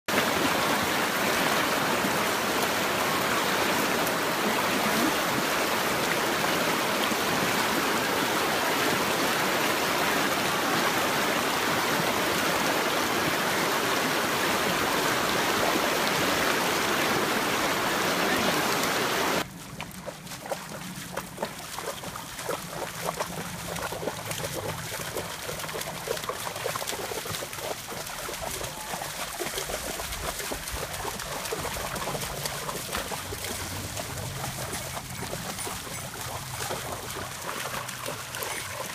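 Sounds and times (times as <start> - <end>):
river rushing over rocks: 0.1 - 19.4
goats wading through water: 0.1 - 38.9
shallow creek trickling: 0.1 - 38.9.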